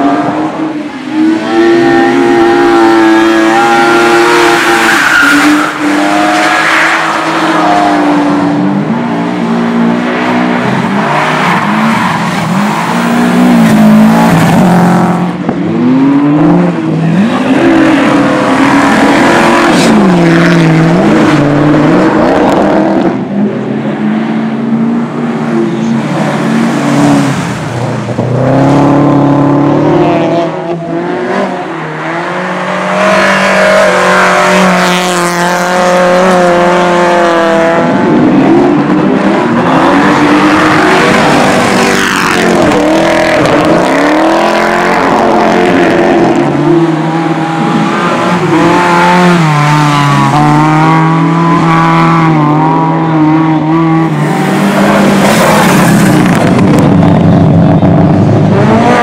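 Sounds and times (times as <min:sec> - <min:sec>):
rally car engines revving: 0:00.0 - 0:59.0
tires sliding on dirt: 0:31.6 - 0:59.0.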